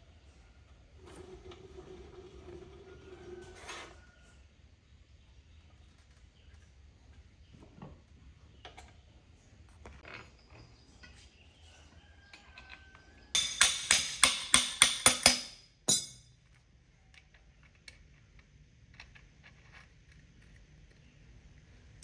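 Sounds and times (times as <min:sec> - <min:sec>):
ringing metal-on-metal taps: 0:13.3 - 0:16.4.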